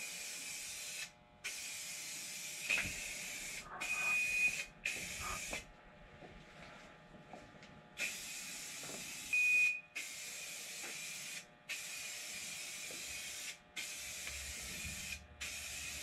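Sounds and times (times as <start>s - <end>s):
aerosol spray can hissing: 0.0s - 3.6s, 4.5s - 5.6s, 8.0s - 9.3s, 10.0s - 16.0s.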